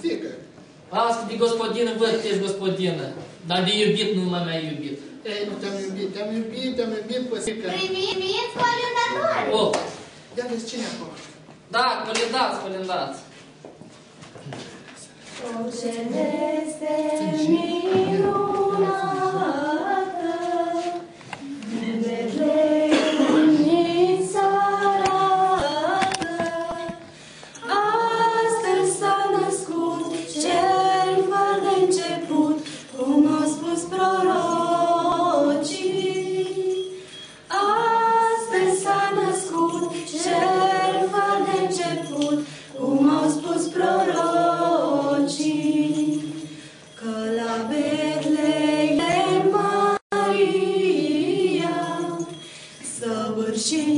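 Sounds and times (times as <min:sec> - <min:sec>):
women singing a carol: 0:15.3 - 0:53.9.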